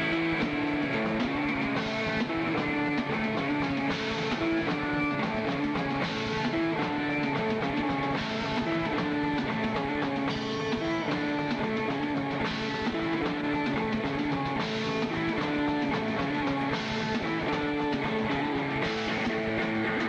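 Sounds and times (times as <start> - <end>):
rock band playing live: 0.0 - 20.0.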